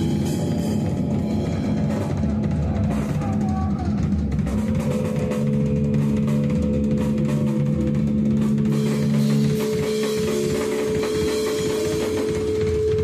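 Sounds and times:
death metal band playing: 0.0s - 13.0s
fast drumming: 0.0s - 13.0s.

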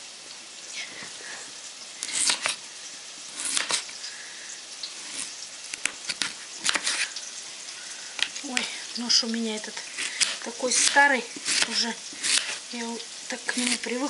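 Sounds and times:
onions sizzling in frying pan: 0.0s - 14.0s
blade clicking on cutting board: 2.0s - 2.6s, 3.4s - 3.9s, 5.7s - 7.1s, 10.1s - 12.6s
knife slicing potato: 2.0s - 2.6s, 3.2s - 4.0s, 4.9s - 7.2s, 8.2s - 14.0s.

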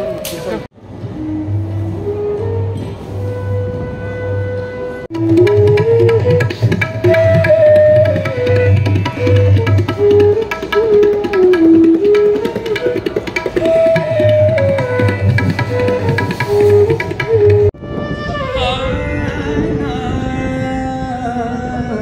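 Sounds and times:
bamboo flute melody: 0.0s - 20.2s
tabla drumming: 5.1s - 17.8s.

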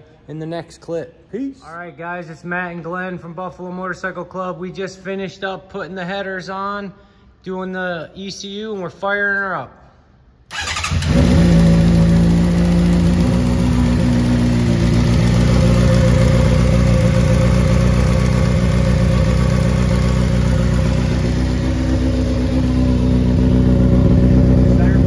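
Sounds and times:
motorcycle engine idling: 10.6s - 25.0s.

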